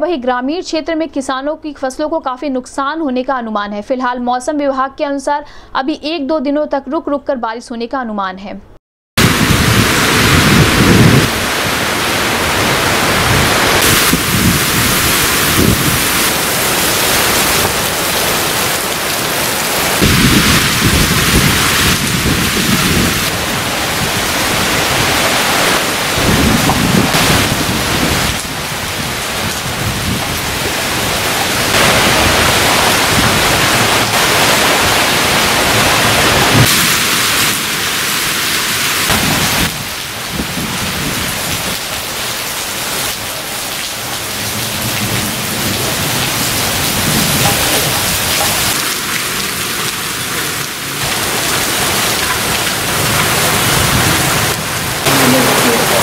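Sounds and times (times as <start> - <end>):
thunder crack: 9.2 - 18.0, 19.9 - 34.9, 39.1 - 41.2
strong wind: 9.2 - 42.2, 44.4 - 56.0
heavy rain: 9.2 - 56.0.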